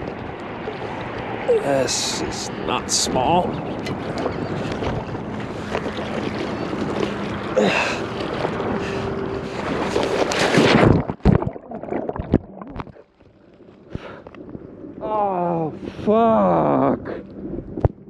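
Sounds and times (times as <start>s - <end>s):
knocks and sloshing water: 0.0s - 1.6s, 2.8s - 14.8s
wind on microphone: 0.0s - 13.0s
splashing water: 2.9s - 14.6s.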